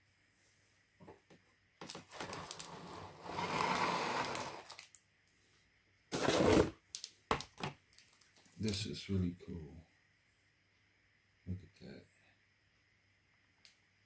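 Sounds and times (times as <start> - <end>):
packaging rustling and scraping: 1.8 - 4.9, 6.1 - 6.8.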